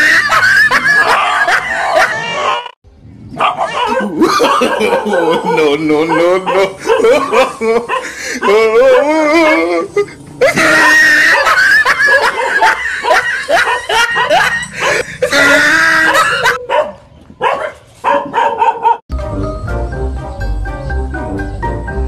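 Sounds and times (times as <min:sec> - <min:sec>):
dog barking and yelping: 0:00.0 - 0:19.0
music: 0:19.1 - 0:22.0.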